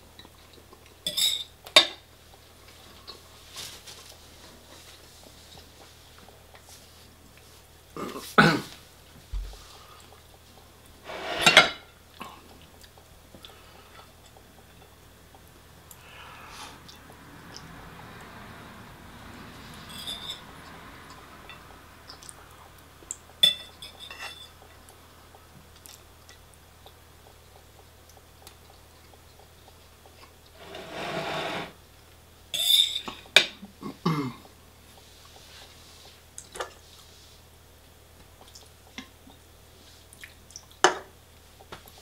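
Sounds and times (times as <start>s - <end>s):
cutlery clinking on dishes: 1.1s - 2.0s, 19.9s - 20.4s, 23.4s - 24.6s.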